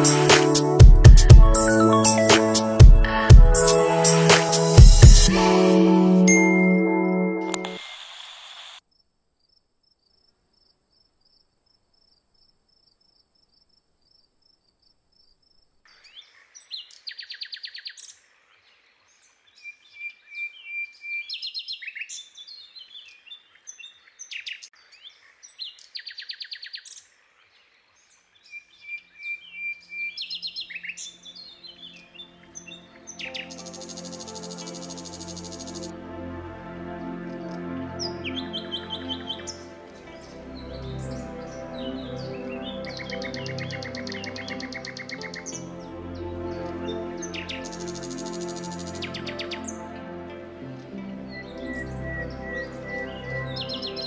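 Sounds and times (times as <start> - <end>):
soft music: 0.0 - 7.9, 31.3 - 54.0
short chime jingle: 5.3 - 7.8
birds chirping and trilling: 12.0 - 35.9, 37.3 - 54.0.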